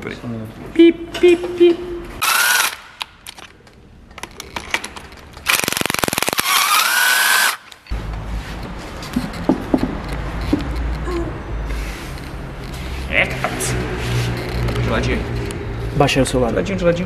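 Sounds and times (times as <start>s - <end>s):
power tool whining: 2.2s - 2.9s, 5.5s - 7.7s.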